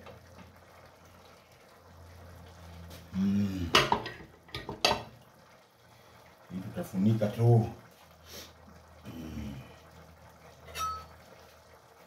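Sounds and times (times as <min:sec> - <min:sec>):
pots simmering: 0:00.0 - 0:12.0
man's wordless vocal sound: 0:03.1 - 0:03.8.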